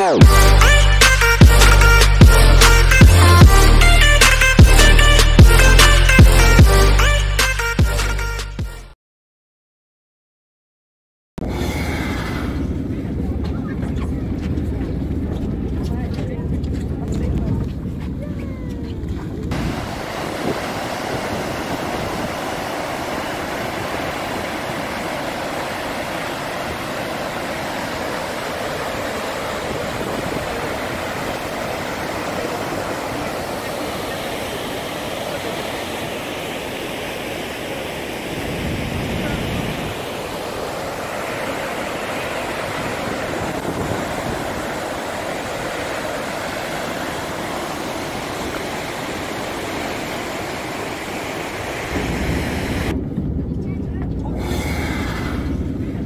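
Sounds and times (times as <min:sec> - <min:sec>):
low rumble: 0:11.4 - 0:20.0, 0:51.8 - 0:56.0
waterfall rushing: 0:19.5 - 0:52.9.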